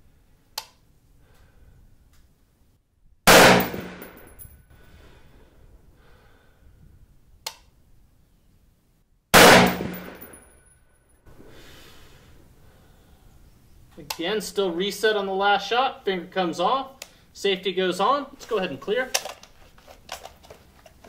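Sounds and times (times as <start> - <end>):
sharp click: 0.6 - 0.8, 7.4 - 7.7
rifle shots echoing: 3.3 - 4.3, 9.4 - 10.4.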